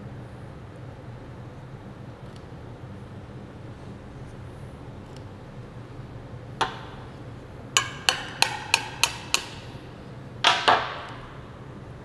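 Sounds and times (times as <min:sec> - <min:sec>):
hammer striking metal: 0:07.8 - 0:09.8.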